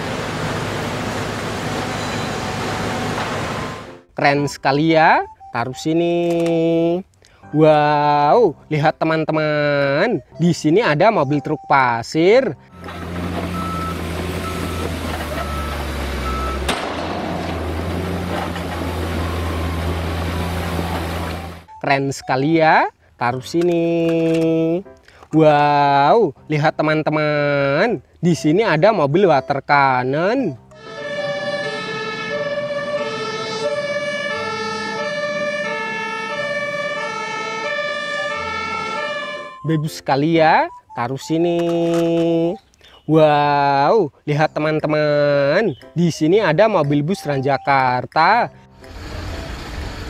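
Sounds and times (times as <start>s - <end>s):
diesel truck engine running: 0.0s - 4.1s, 12.6s - 21.8s, 48.5s - 50.0s
reversing alarm beeping: 1.7s - 2.8s, 5.2s - 5.9s, 10.2s - 11.8s, 12.7s - 17.8s, 18.5s - 22.4s, 30.7s - 40.0s, 40.6s - 41.4s
other siren tones: 12.7s - 16.8s, 17.4s - 22.1s, 30.6s - 41.0s
two-tone emergency siren: 12.7s - 16.8s, 18.3s - 21.8s, 30.7s - 39.9s.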